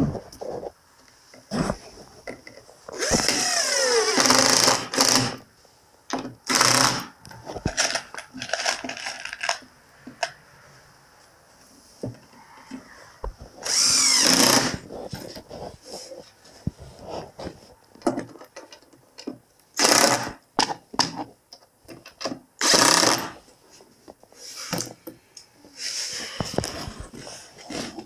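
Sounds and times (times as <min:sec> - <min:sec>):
cordless drill whining: 0:02.9 - 0:05.4, 0:06.5 - 0:07.1, 0:13.6 - 0:14.8, 0:22.6 - 0:23.3.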